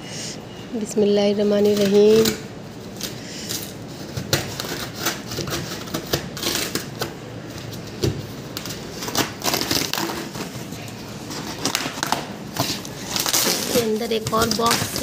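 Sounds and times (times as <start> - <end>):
cardboard box tearing: 4.3 - 7.0, 8.6 - 15.0.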